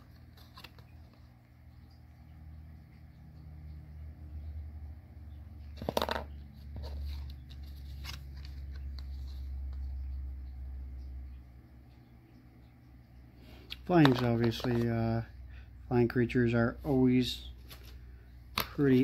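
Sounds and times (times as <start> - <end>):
cards rustling and clicking: 0.0 - 1.3, 5.7 - 10.1, 13.5 - 15.2, 16.9 - 19.0.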